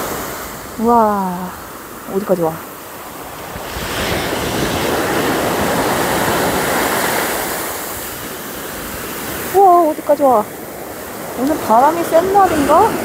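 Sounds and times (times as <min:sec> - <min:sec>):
wind buffeting microphone: 0:03.2 - 0:13.0.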